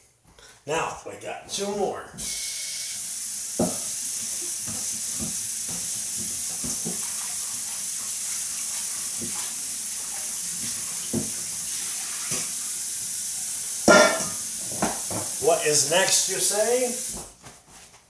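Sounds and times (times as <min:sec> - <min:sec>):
tap water running: 0:02.2 - 0:17.3
steel bowl knocking: 0:13.8 - 0:15.4.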